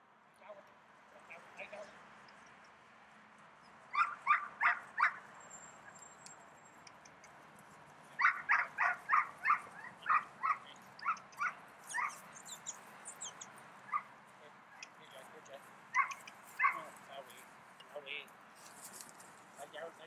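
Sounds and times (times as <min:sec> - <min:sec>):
dog barking: 0:03.9 - 0:05.3, 0:08.2 - 0:14.1, 0:15.9 - 0:17.0.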